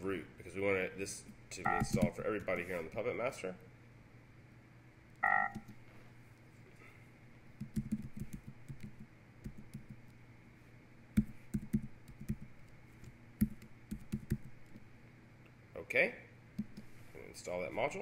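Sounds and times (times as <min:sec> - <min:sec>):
faint steady hum: 0:00.0 - 0:18.0
computer keyboard typing: 0:01.7 - 0:02.5, 0:07.6 - 0:10.0, 0:11.2 - 0:14.8.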